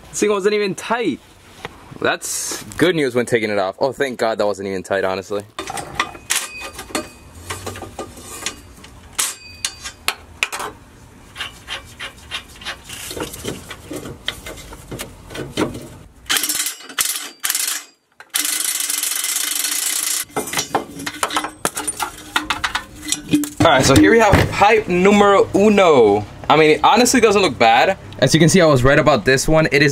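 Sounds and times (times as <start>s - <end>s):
metal tools clinking and rattling: 5.6s - 10.0s, 16.3s - 23.7s
impact wrench running: 16.3s - 20.4s.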